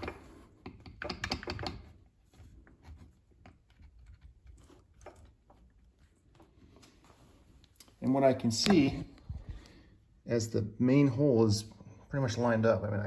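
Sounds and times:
steel parts clicking and tapping: 0:00.0 - 0:01.9.

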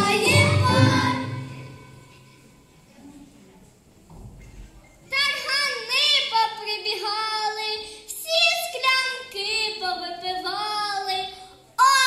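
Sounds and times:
girl singing into microphone: 0:05.1 - 0:12.0.

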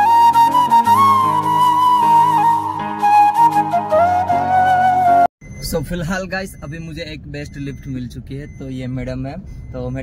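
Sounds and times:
slow melody with low accompaniment: 0:00.0 - 0:05.3.

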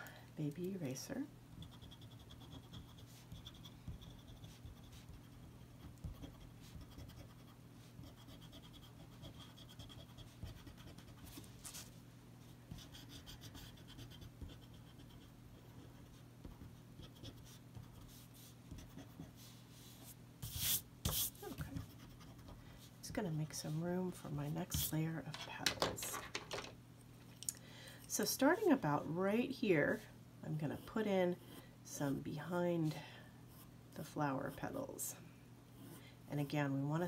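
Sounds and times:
eraser rubbing on paper: 0:01.6 - 0:11.9, 0:17.1 - 0:22.6.

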